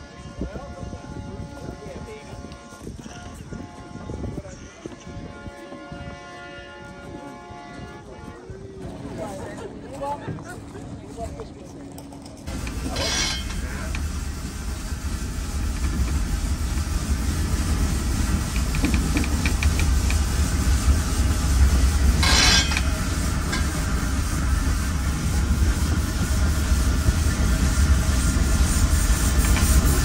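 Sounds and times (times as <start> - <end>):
train car low rumble: 0.0 - 30.0
steam hiss: 12.5 - 30.0.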